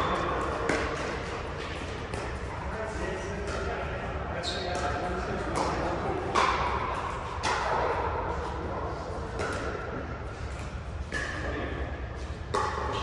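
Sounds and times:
paddles hitting plastic ball: 0.1 - 2.5.

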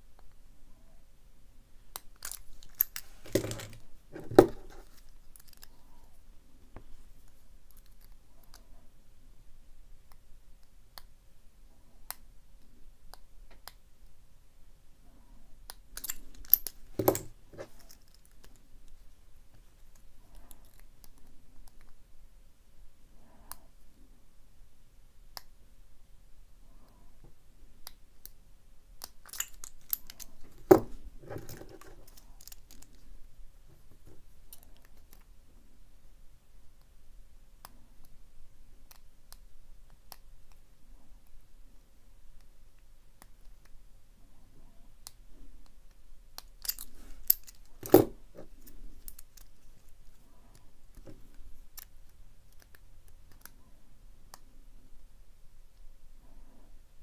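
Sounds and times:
lock pick clicking in padlock: 2.0 - 3.8, 16.0 - 18.1, 29.0 - 30.8, 46.4 - 48.1.

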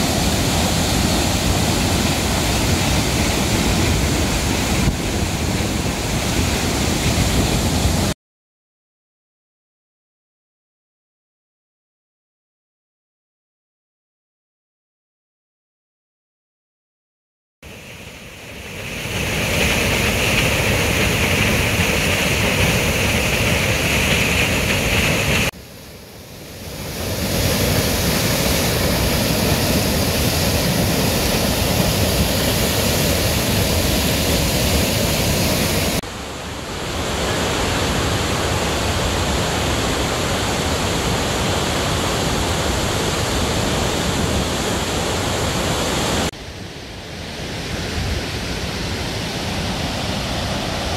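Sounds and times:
water rushing down spillway: 0.0 - 8.2, 17.7 - 46.3.

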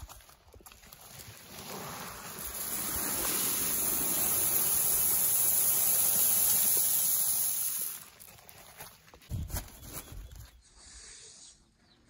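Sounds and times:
dried corn kernels pouring: 0.8 - 8.7.

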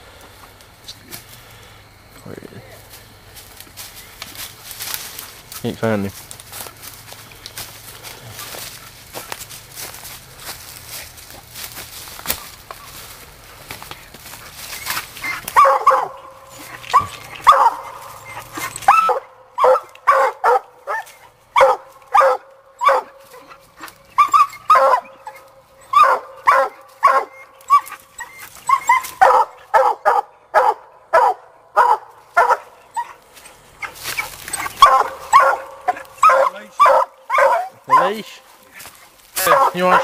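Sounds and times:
dog barking sharply: 15.2 - 23.5, 24.2 - 27.9, 28.7 - 33.2, 34.6 - 38.4, 39.4 - 40.0.

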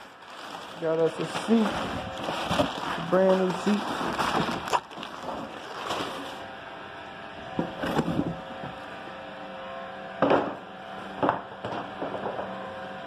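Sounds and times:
cardboard and paper rustling: 0.0 - 6.4
steady hum: 0.0 - 13.0.

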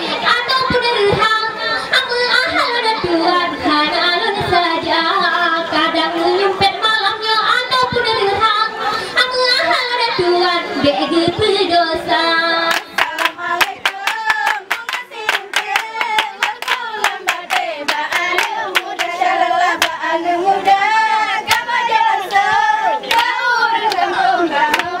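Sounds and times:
women singing chant-like song: 0.0 - 25.0
hand claps: 12.7 - 19.2, 23.0 - 24.1, 24.7 - 25.0.

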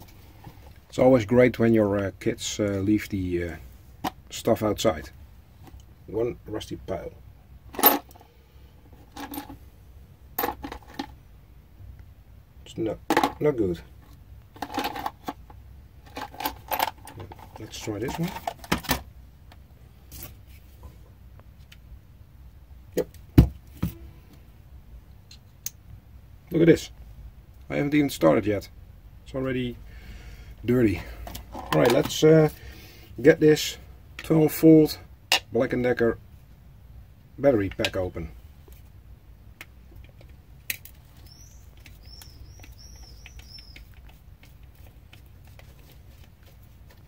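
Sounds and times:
high chirping squeaks: 41.2 - 44.0.

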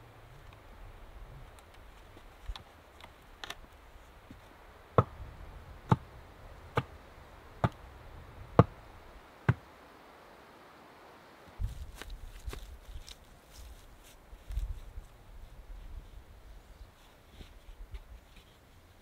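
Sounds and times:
wooden stake being struck: 5.0 - 5.2, 5.9 - 6.1, 6.7 - 6.9, 7.6 - 7.8, 8.6 - 8.8, 9.4 - 9.7.

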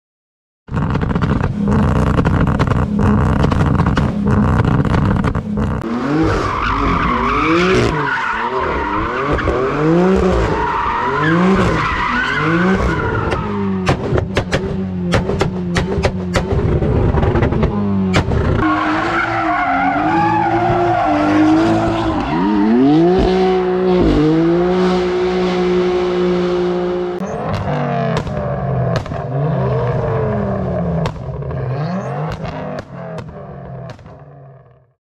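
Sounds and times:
car engine revving: 0.7 - 34.6
tyre squeal: 6.2 - 13.6.

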